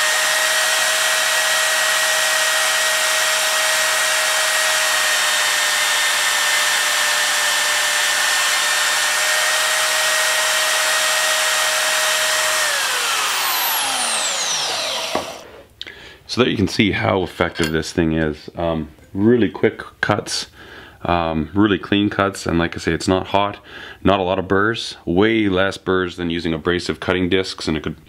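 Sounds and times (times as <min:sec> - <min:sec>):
bandsaw whining while cutting steel: 0:00.0 - 0:15.5
motor and blade coasting down: 0:00.0 - 0:15.5.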